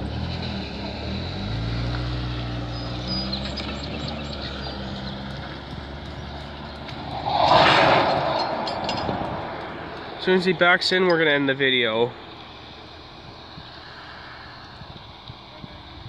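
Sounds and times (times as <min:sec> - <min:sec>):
low engine hum: 0:00.0 - 0:16.0
freight train rolling slowly: 0:04.7 - 0:16.0.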